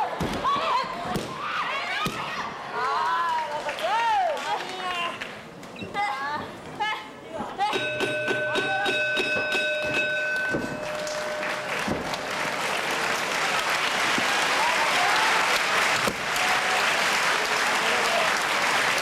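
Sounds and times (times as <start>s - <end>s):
applause and cheering: 2.8s - 5.2s, 10.8s - 19.0s
steady held tone: 7.7s - 12.4s
crowd clapping in rhythm: 10.4s - 19.0s.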